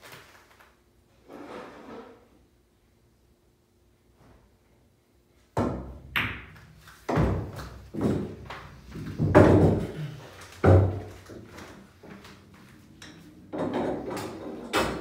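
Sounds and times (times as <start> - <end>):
pool balls clacking: 5.6 - 15.0
ball rolling through return channel: 11.1 - 15.0.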